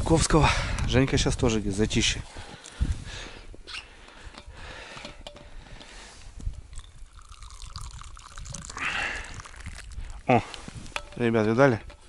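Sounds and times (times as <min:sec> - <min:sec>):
tea pouring into cup: 0:06.7 - 0:11.1.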